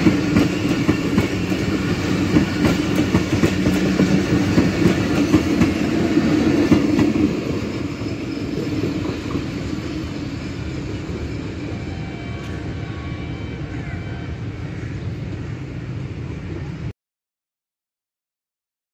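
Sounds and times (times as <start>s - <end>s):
train wheels rolling on rails: 0.0s - 13.5s.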